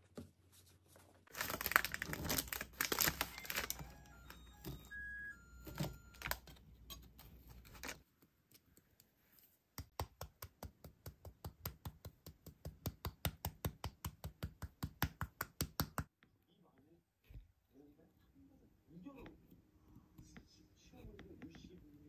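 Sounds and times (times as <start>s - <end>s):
paper crinkling: 0.6s - 4.8s, 7.2s - 8.1s.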